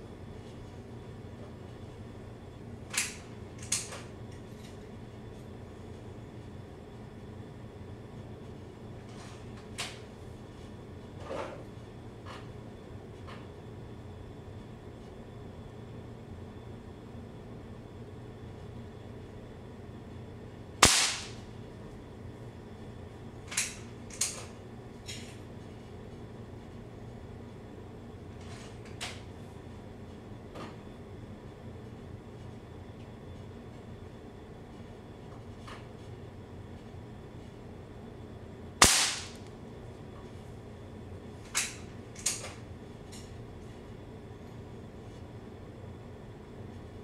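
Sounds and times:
air rifle shot: 20.8s - 21.4s, 38.8s - 39.4s.

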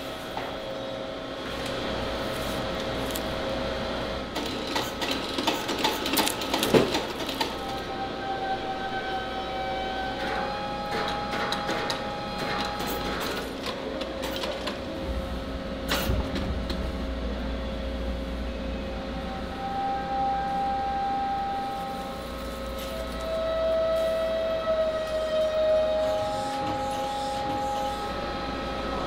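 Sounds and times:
machines whining: 0.0s - 29.0s
low rumble: 14.7s - 19.5s.

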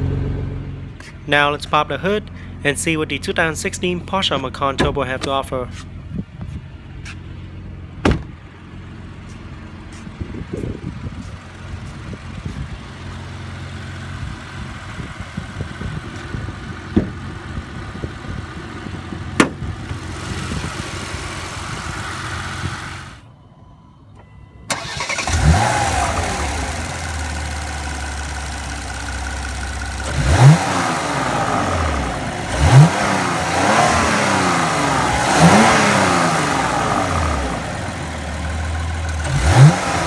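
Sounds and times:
car engine idling: 0.0s - 40.0s
knock from car hood: 8.0s - 8.3s.

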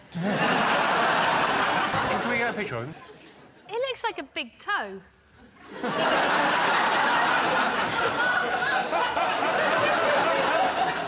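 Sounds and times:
studio audience laughing: 0.1s - 3.4s, 5.5s - 11.0s.

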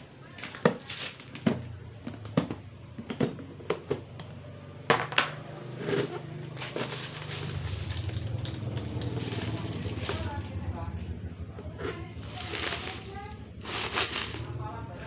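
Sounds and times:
low steady hum: 5.4s - 15.0s.

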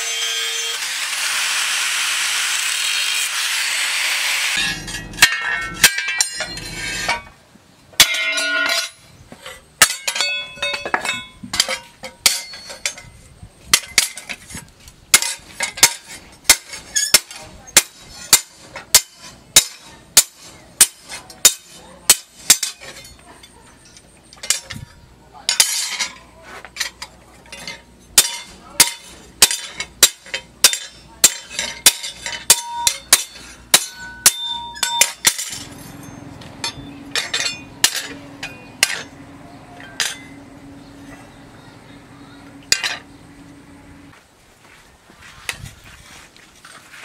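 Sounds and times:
hammer striking metal: 4.5s - 7.3s, 8.0s - 9.0s, 9.8s - 13.1s, 15.2s - 23.6s, 26.8s - 39.2s, 39.8s - 40.4s
steady low hum: 17.6s - 46.1s.

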